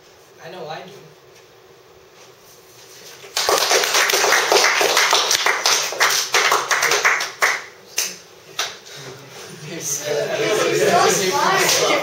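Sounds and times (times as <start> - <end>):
audience applauding: 3.3 - 7.8.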